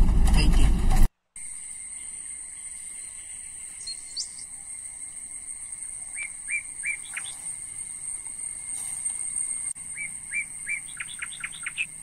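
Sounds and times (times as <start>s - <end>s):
birds chirping: 1.4s - 12.0s
high-pitched insect drone: 1.4s - 12.0s.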